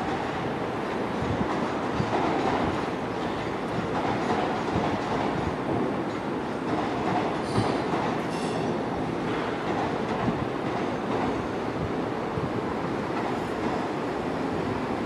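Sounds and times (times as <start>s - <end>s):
train wheel knocks: 1.2s - 11.4s.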